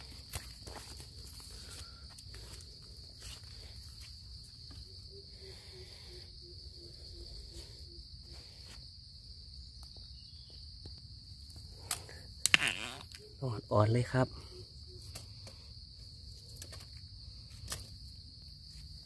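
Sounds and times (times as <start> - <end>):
footsteps on dry leaves: 0.0 - 4.2
insects droning: 0.0 - 19.0.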